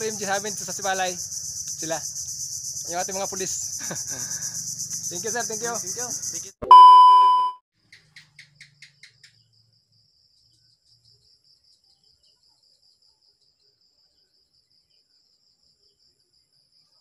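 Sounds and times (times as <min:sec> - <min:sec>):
night insect chirps and trill: 0:00.0 - 0:06.6, 0:07.8 - 0:17.0
loud test-tone beep: 0:06.6 - 0:07.6.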